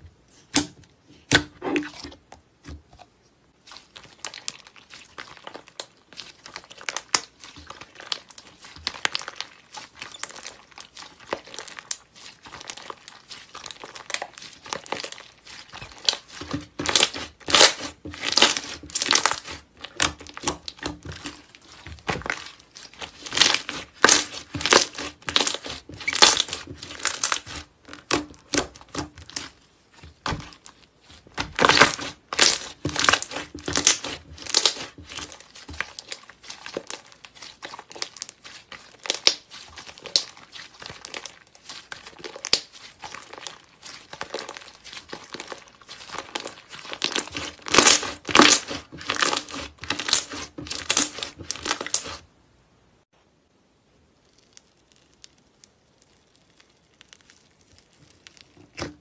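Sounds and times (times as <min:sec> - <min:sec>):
slime crackling and popping: 0:03.6 - 0:52.2, 0:54.1 - 0:59.0.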